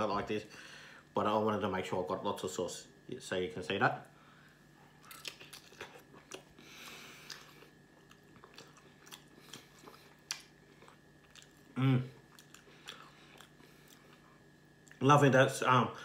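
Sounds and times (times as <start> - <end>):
person chewing food: 4.9 - 15.0
person humming: 11.8 - 12.2.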